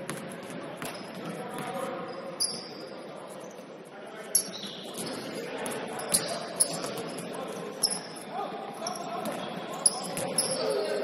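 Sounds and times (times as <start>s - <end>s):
murmur of voices: 0.0s - 11.0s
shoes squeaking on floor: 2.0s - 3.6s, 4.3s - 5.2s, 6.0s - 7.2s, 7.8s - 10.8s.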